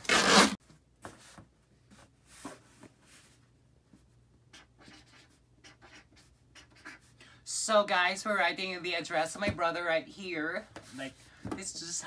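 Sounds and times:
packing tape ripping: 0.0s - 0.6s.

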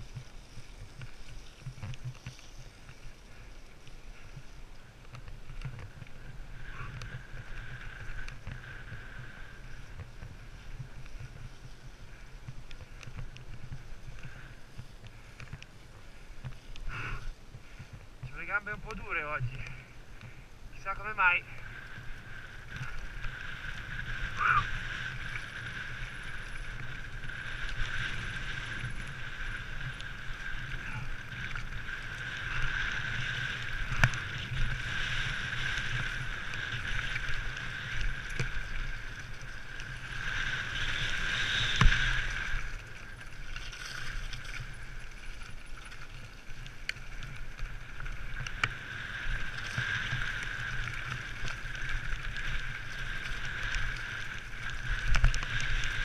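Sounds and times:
bike rumbling on gravel trail: 0.0s - 56.0s.

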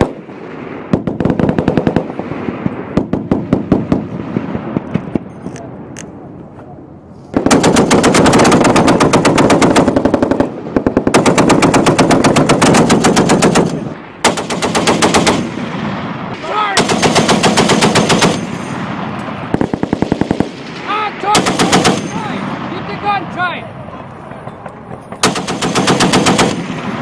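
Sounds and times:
heavy machine gun bursts: 16.8s - 18.8s, 21.3s - 22.2s, 25.1s - 27.0s.

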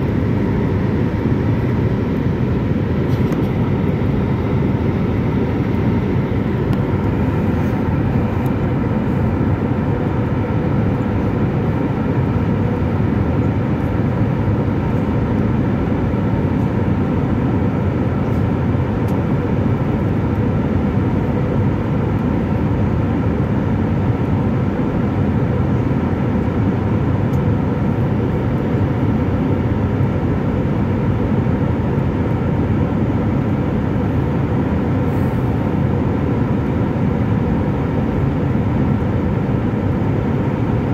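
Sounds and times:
rushing airflow: 0.0s - 9.6s
jet engine cabin noise: 0.0s - 40.9s.

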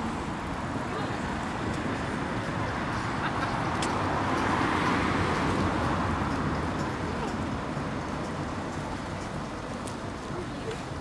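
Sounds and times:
cars passing: 0.0s - 11.0s.

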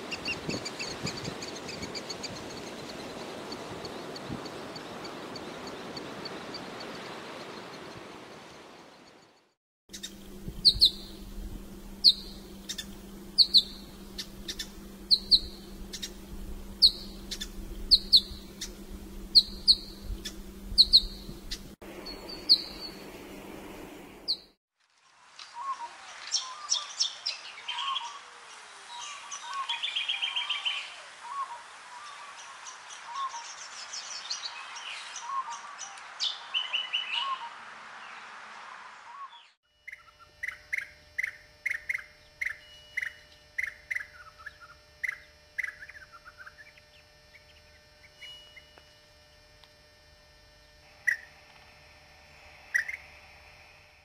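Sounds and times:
bird song with quick trills: 9.9s - 11.3s, 12.0s - 16.2s, 16.8s - 23.0s, 39.2s - 49.4s, 52.7s - 53.0s
steady low hum: 9.9s - 24.6s, 39.7s - 54.0s.

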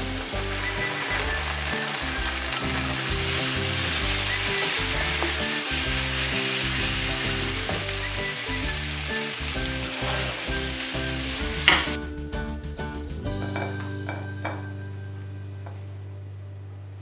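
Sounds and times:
steak sizzling in a skillet: 0.0s - 12.0s
background music: 0.0s - 17.0s
spatula stirring in a pan: 0.4s - 11.9s.

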